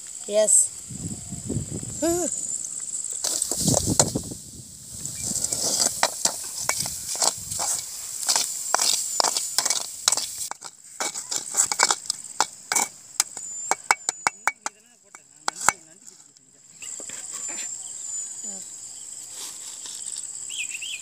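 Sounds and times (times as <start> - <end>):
soft frying sizzle: 2.6 - 12.7
steel ladle scraping metal pan: 12.7 - 12.9.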